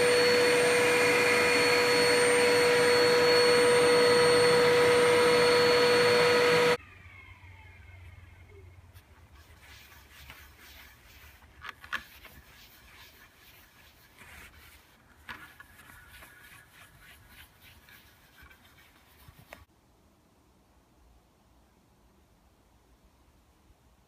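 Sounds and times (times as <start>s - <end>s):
cloth rubbing spinning wooden bowl: 9.0s - 19.7s.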